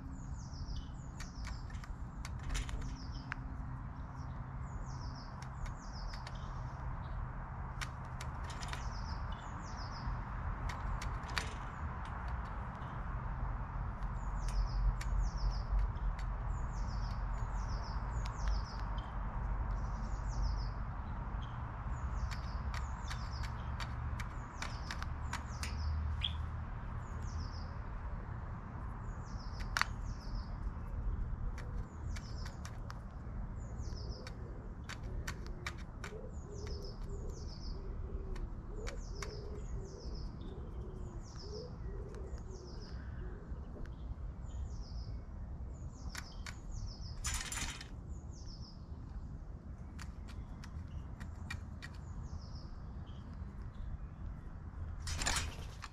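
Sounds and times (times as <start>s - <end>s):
songbird chirping: 0.0s - 55.9s
sharp clicks: 1.0s - 3.5s, 5.2s - 6.6s, 7.6s - 13.2s, 13.8s - 19.8s, 22.0s - 26.5s, 29.4s - 37.4s, 46.0s - 48.1s.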